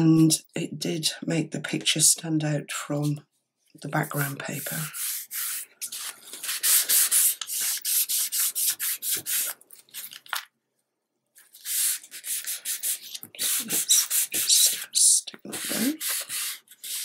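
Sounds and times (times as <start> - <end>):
tissue rubbing over paper: 4.2 - 10.2, 11.4 - 17.0.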